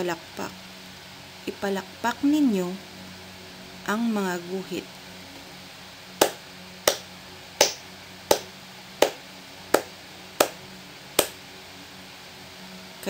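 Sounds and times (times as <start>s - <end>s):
hand claps: 6.2s - 7.0s, 7.6s - 9.2s, 9.8s - 10.6s.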